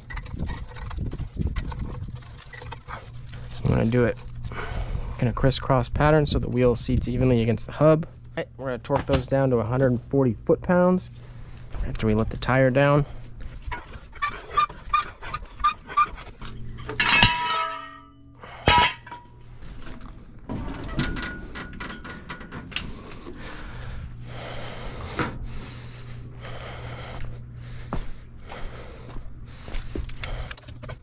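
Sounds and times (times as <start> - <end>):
metal tools clanking on concrete: 13.7 - 19.4, 20.5 - 23.1.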